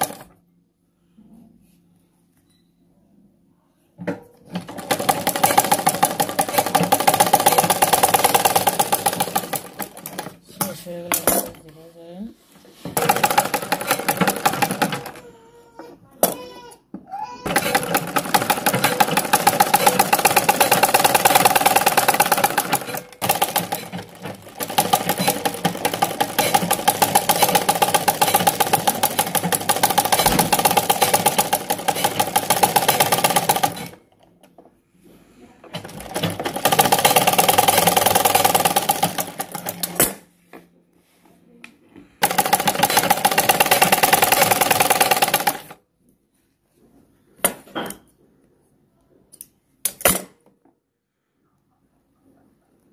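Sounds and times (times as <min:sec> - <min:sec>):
sewing machine needle clatter: 0:04.5 - 0:11.5, 0:13.0 - 0:15.2, 0:17.5 - 0:34.1, 0:35.8 - 0:40.2, 0:42.2 - 0:45.8.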